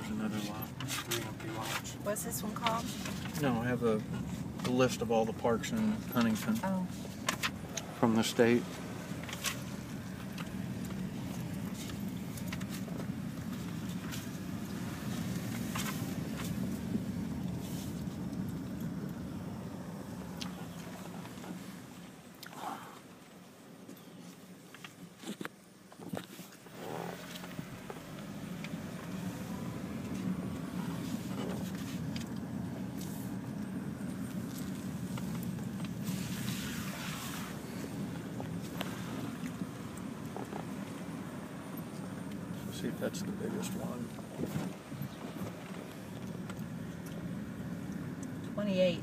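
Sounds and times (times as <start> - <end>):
car driving low rumble: 0.0 - 49.0
hiss: 36.0 - 37.6.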